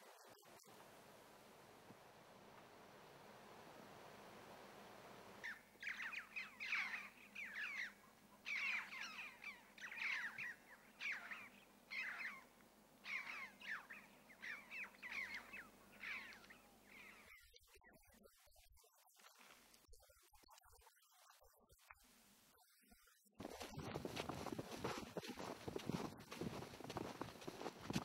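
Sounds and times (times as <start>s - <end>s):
flock of birds calling harshly: 5.4s - 7.9s, 8.5s - 12.4s.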